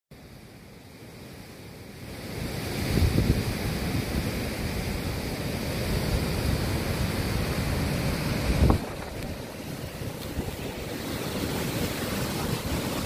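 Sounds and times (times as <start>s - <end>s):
heavy surf breaking: 2.2s - 13.0s
wind buffeting microphone: 6.0s - 13.0s.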